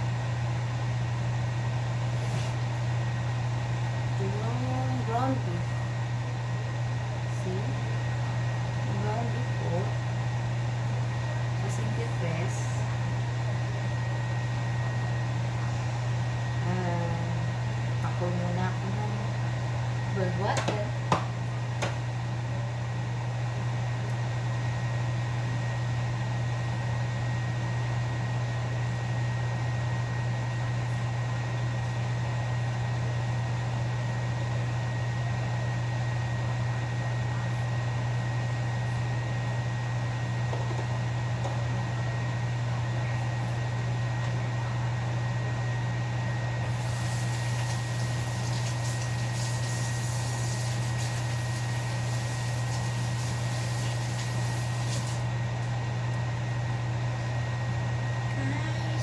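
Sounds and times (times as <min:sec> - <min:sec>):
kitchen appliance electric hum: 0:00.0 - 0:59.0
hiss: 0:46.7 - 0:55.2.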